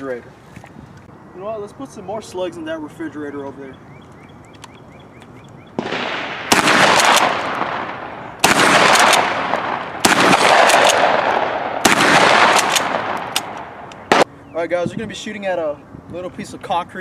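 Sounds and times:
shotgun shots with echo: 0:05.8 - 0:14.3.

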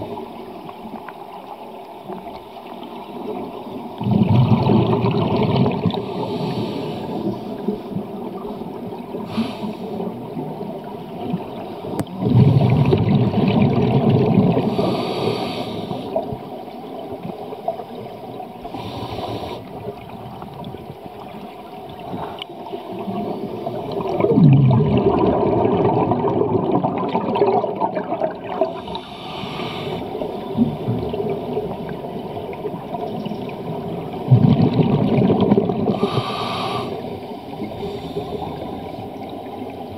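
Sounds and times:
exhaled air bubbling underwater: 0:00.0 - 0:39.9
regulator inhale hiss: 0:06.0 - 0:07.6, 0:09.2 - 0:10.1, 0:14.6 - 0:16.2, 0:18.6 - 0:19.7, 0:28.7 - 0:30.4, 0:35.9 - 0:39.0.

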